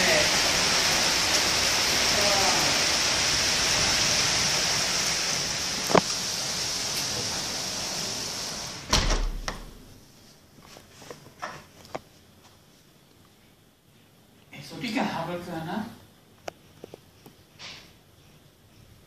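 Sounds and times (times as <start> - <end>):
heavy rain pouring: 0.0 - 10.0
door shutting with a thump: 8.8 - 9.9.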